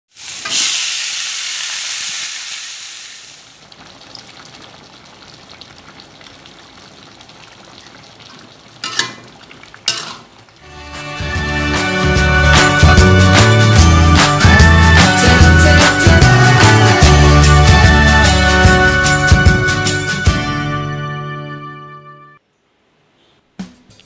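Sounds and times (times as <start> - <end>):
spice paste sizzling in hot oil: 0.1 - 10.1
broth simmering with stirring: 3.5 - 10.7.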